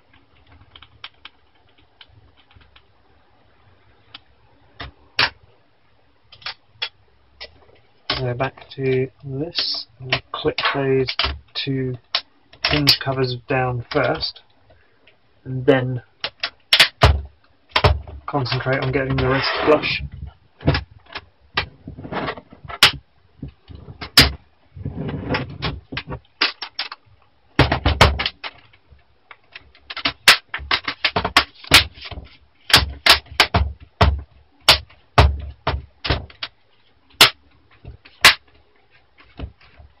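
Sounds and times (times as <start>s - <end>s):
sharp plastic clicks: 16.2s - 19.3s, 25.9s - 27.0s, 27.6s - 38.6s
plastic rubbing and scraping: 17.8s - 27.0s, 29.6s - 40.0s.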